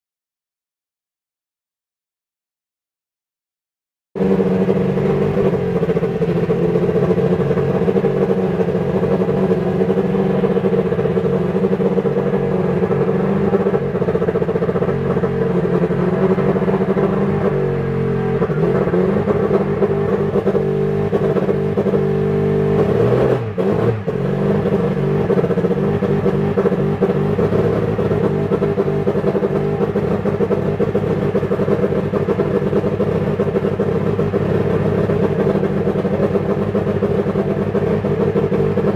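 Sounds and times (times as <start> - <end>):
racing car engine idling: 4.2 - 38.9.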